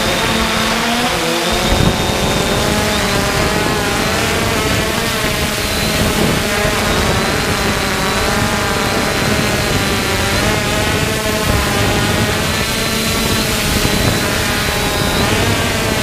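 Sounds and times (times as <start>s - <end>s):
quadcopter motors buzzing: 0.0s - 16.0s.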